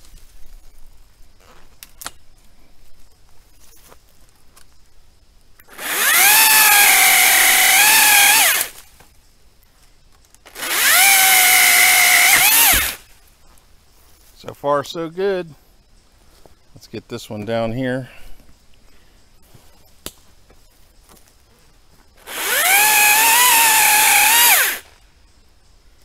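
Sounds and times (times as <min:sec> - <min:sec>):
electric pole saw cutting wood: 0:05.7 - 0:08.7, 0:10.5 - 0:13.0, 0:22.2 - 0:24.9.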